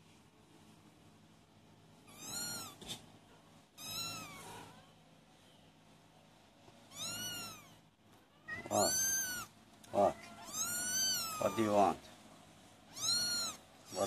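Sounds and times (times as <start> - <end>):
kittens mewing: 2.1 - 3.0, 3.8 - 4.9, 6.9 - 11.8, 12.8 - 14.0.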